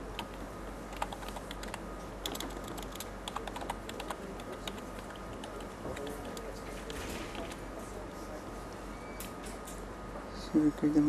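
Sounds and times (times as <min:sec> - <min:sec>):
computer keyboard key clicks: 0:00.2 - 0:07.6.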